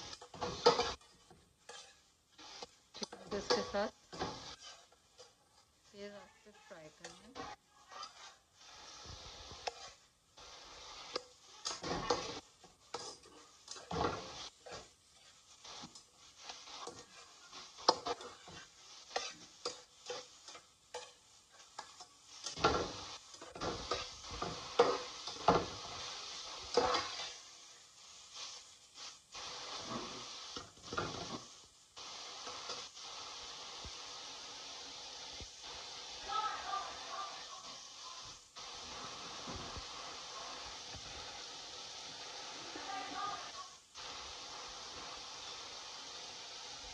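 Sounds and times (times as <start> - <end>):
metal spatula scraping frying pan: 0.0 - 27.5, 28.3 - 33.2
oil sizzling: 0.0 - 46.9.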